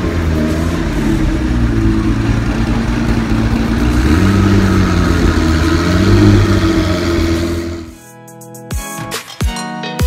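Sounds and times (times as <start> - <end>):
car engine idling: 0.0 - 8.0.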